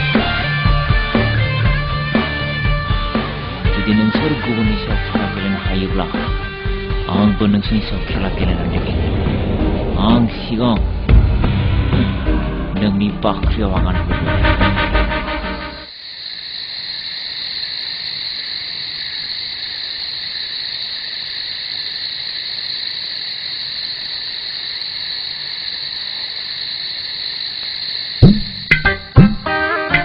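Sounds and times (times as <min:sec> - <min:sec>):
frogs and insects chorus: 0:15.9 - 0:29.6
plucked guitar notes: 0:28.2 - 0:30.0.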